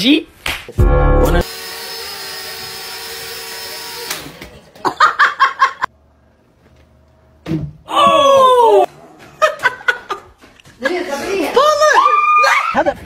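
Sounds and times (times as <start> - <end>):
toy drone motor whine: 1.4 - 4.4.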